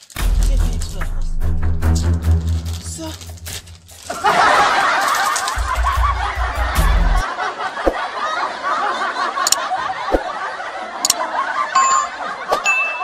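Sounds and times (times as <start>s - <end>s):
crowd laughter: 4.0s - 13.0s.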